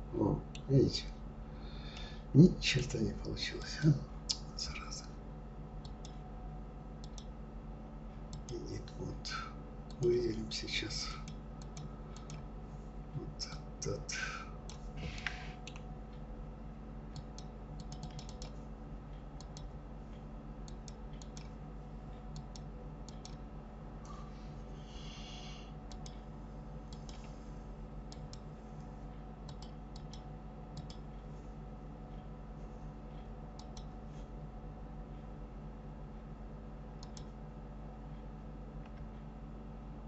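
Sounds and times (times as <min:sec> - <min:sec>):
steady low hum: 0:00.0 - 0:40.0
mouse and keyboard clicks: 0:17.2 - 0:18.6.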